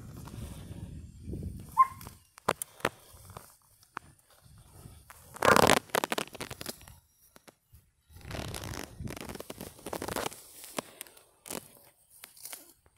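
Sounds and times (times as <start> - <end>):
buffalo ripping grass: 5.0 - 6.8, 8.2 - 12.8.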